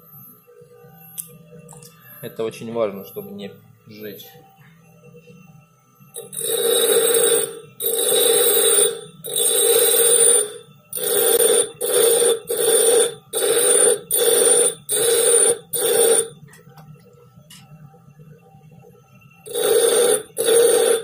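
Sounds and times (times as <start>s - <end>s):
grinder motor humming: 6.2s - 16.3s, 19.5s - 21.0s.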